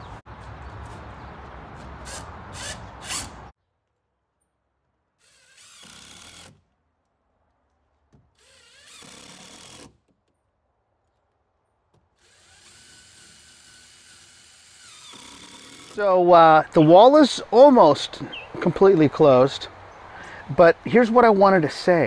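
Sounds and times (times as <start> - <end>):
cordless drill driving screws: 8.4 - 10.0, 12.2 - 16.0.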